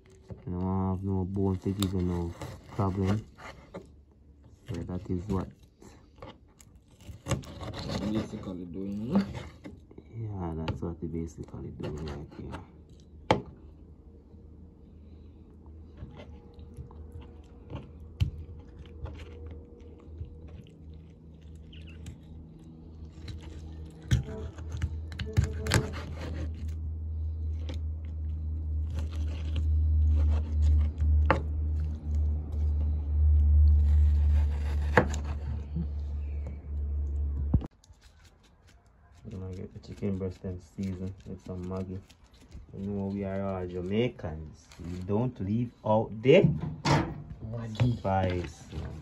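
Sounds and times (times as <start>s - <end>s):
low hum: 0.0s - 37.7s
knife cutting on wooden board: 6.2s - 9.8s, 23.3s - 26.8s, 33.8s - 35.6s.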